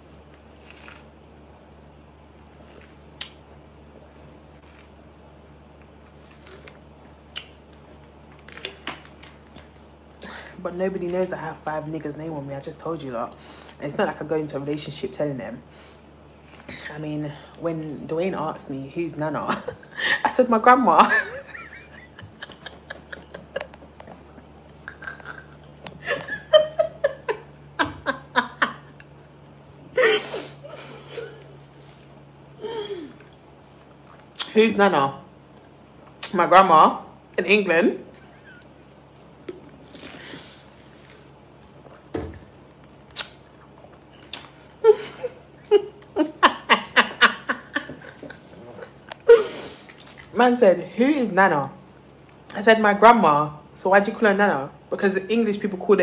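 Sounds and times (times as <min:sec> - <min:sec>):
woman laughing: 0:21.0 - 0:29.0, 0:29.9 - 0:31.6, 0:44.8 - 0:49.7.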